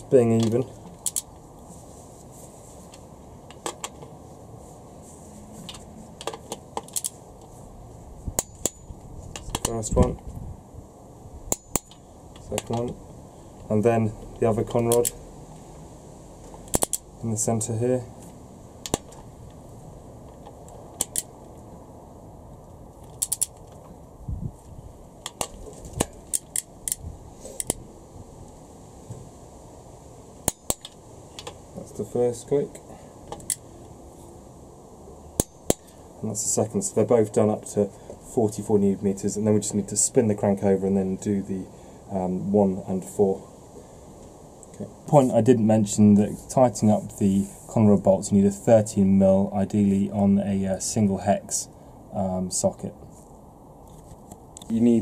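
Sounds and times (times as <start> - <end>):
torque wrench clicks: 16.7 - 17.0, 23.2 - 23.6.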